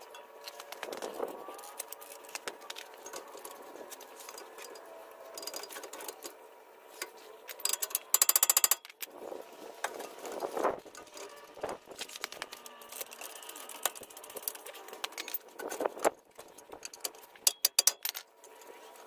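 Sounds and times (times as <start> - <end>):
metal clicks and knocks: 16.6 - 18.3.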